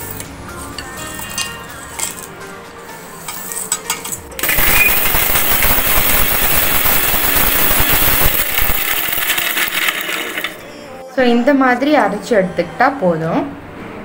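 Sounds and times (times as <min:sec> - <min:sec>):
spices clinking into jar: 0:03.8 - 0:10.6
mixer grinder running: 0:04.4 - 0:10.7.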